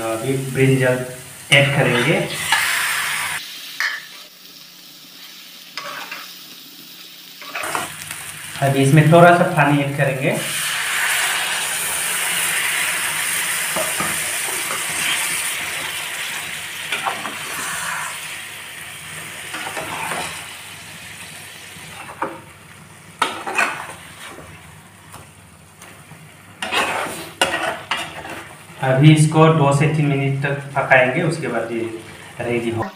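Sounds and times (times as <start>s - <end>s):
curry sizzling in a frying pan: 0.0s - 32.9s
metal spatula scraping a pan: 1.8s - 4.2s, 5.8s - 6.3s, 7.4s - 7.9s, 19.5s - 20.5s, 23.2s - 24.5s, 26.6s - 28.6s.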